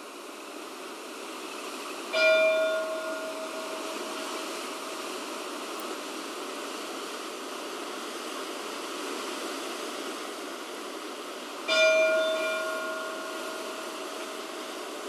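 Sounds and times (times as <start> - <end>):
wind in trees: 0.0 - 15.0
church bell stroke: 2.2 - 4.1, 11.7 - 13.9.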